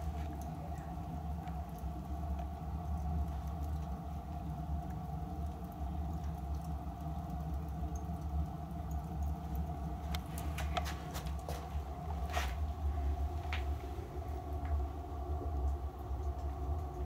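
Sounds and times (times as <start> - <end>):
boiler-room machinery humming: 0.0 - 17.0
faint steady whine: 0.0 - 17.0.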